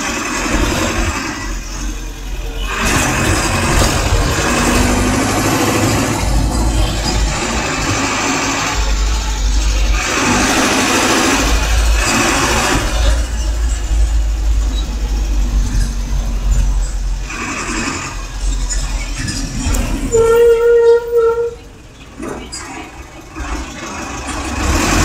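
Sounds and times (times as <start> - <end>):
engine rumble: 0.0 - 25.0
rush of passing traffic: 0.0 - 25.0.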